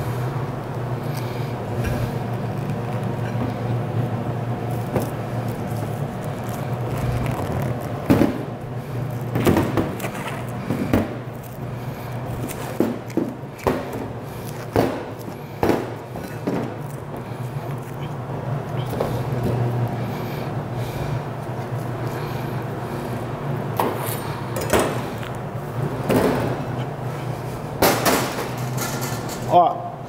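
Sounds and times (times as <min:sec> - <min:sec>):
steady low hum: 0:00.0 - 0:30.0
cling film crinkling: 0:04.7 - 0:08.3.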